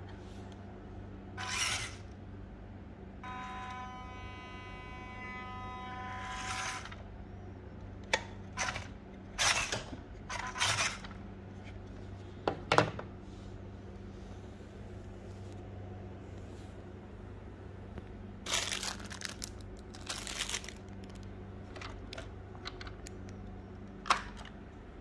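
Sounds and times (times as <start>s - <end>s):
electric motor whine: 1.4s - 2.0s, 3.2s - 7.0s.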